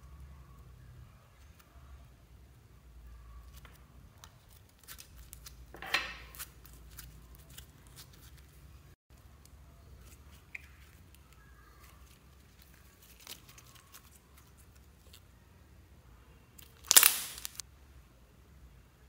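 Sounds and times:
slime squeezed by hand: 16.8s - 17.6s.

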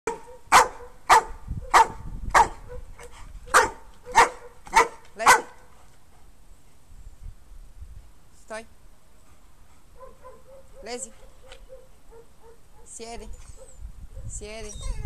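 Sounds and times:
dog barking: 0.1s - 2.9s, 3.5s - 5.6s, 10.0s - 12.9s.

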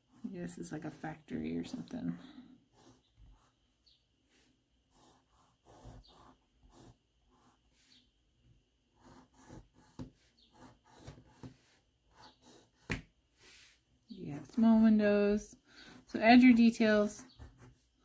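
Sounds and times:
pencil strokes on paper: 0.0s - 3.6s, 4.3s - 8.1s, 8.9s - 18.0s
pencil tap: 12.8s - 13.1s.

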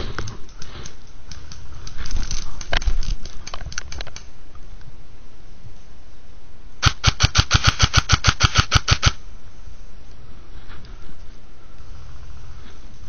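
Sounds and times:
soft clicks and rustles: 0.0s - 5.0s
airsoft rifle full-auto burst: 6.8s - 9.2s.

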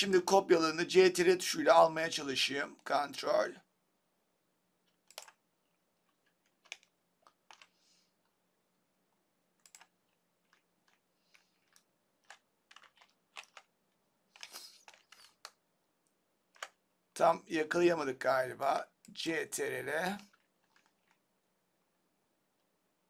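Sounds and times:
mouse and keyboard clicks: 4.8s - 5.4s, 6.0s - 7.7s, 9.6s - 13.7s, 14.3s - 15.6s, 16.5s - 16.8s.

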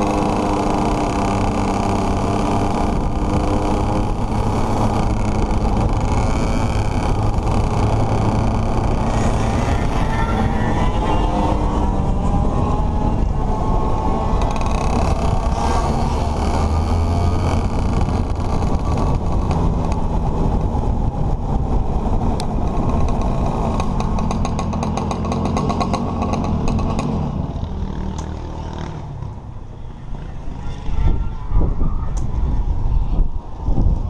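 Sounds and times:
kart engine running: 0.0s - 31.0s
fast clicking rattle: 22.4s - 27.1s.

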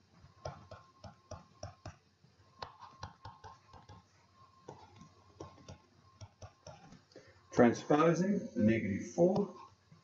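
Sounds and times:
faint steady tone: 0.0s - 10.0s
stylus tapping on tablet screen: 0.4s - 7.0s.

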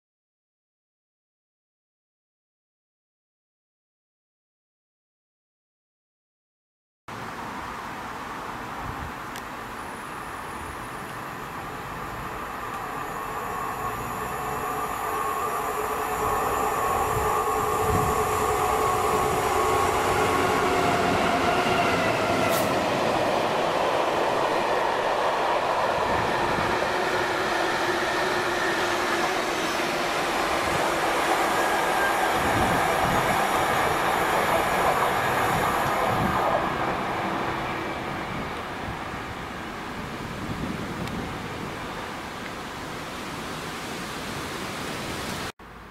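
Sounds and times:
diesel locomotive engine whine: 8.5s - 41.9s.

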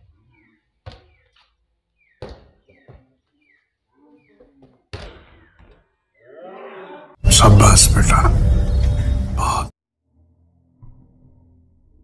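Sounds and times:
volleyball being hit by hand: 2.2s - 3.1s, 4.6s - 5.8s.

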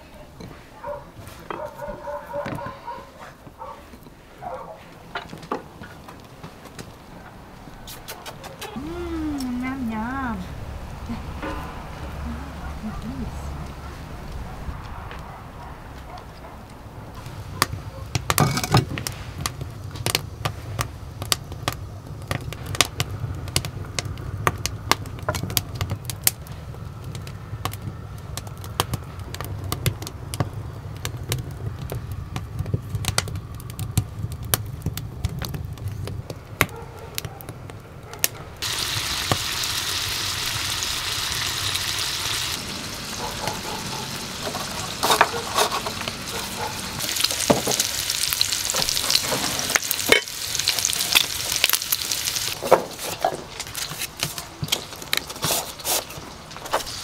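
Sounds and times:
food sizzling in a frying pan: 18.2s - 20.2s, 38.6s - 57.0s.

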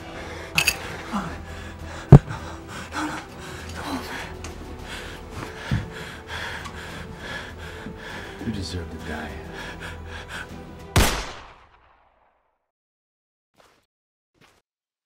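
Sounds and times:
man gasping and breathing hard: 0.0s - 8.4s, 9.4s - 10.8s.

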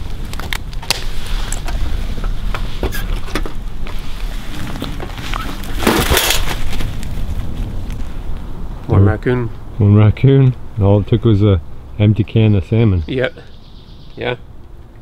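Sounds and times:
leaves rustling: 0.0s - 9.8s
steady low rumble: 0.0s - 15.0s.

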